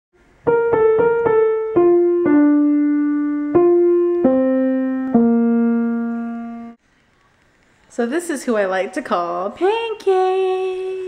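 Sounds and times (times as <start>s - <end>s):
piano single notes: 0.4s - 6.8s.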